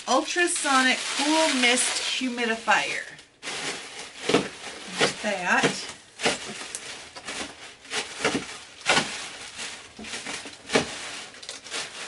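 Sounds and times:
cardboard box scraping and rustling: 2.9 - 12.0.

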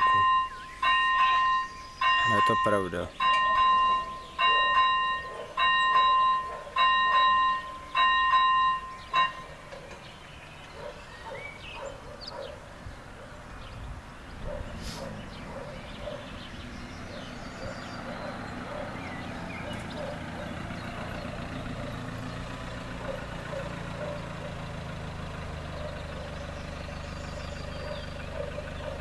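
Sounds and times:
level crossing bell ringing: 0.0 - 9.5.

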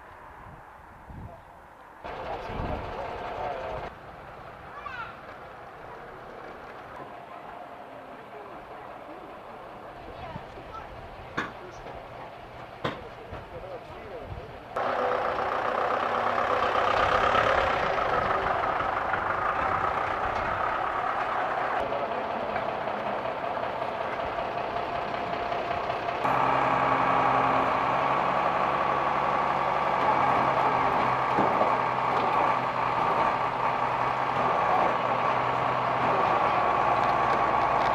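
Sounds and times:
truck engine idling: 1.8 - 37.9.

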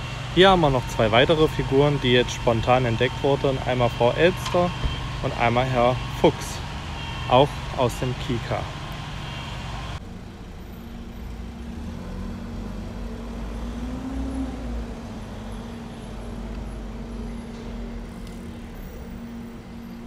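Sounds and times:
vehicle engine running: 0.0 - 20.0.

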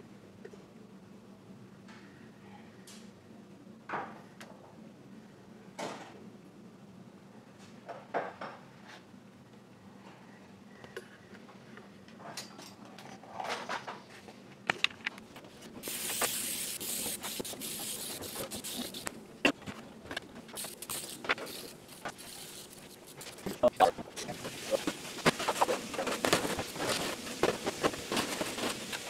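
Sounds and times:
aerosol spray can hissing: 15.8 - 19.2, 20.6 - 29.0
handling knocks and clatter: 17.0 - 29.0.

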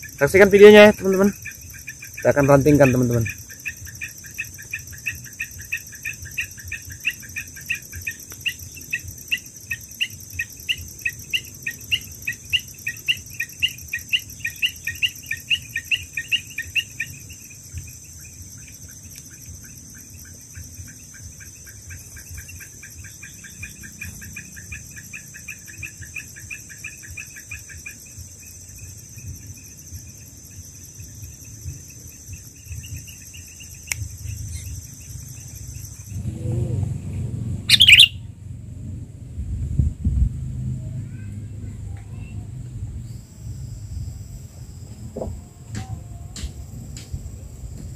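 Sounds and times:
high-pitched insect buzz: 0.0 - 36.2, 37.7 - 38.2
insects chirping: 0.0 - 47.9.

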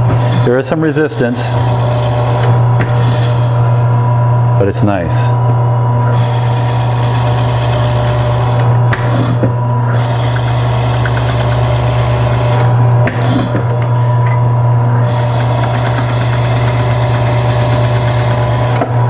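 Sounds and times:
meat slicer motor hum: 0.0 - 19.0
blade rasping through frozen meat: 6.2 - 12.5, 15.0 - 18.7.

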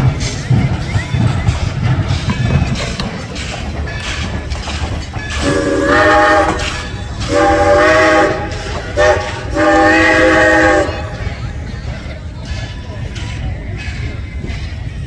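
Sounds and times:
low rumble of moving train: 0.0 - 15.0
steam locomotive chime whistle: 5.0 - 11.9.

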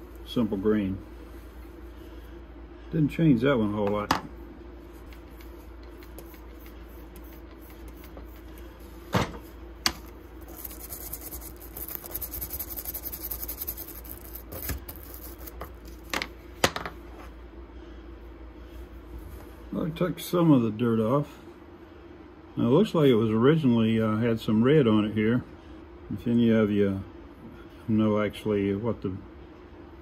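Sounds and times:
steady low hum: 0.0 - 30.0
brush scrubbing screwdriver: 10.5 - 15.6.

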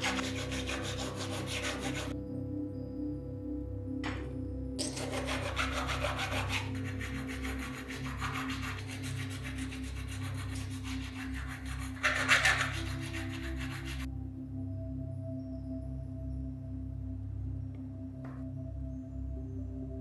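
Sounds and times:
abrasive rasping of filing: 0.0 - 2.1, 4.8 - 14.1
soft background music: 0.0 - 20.0.

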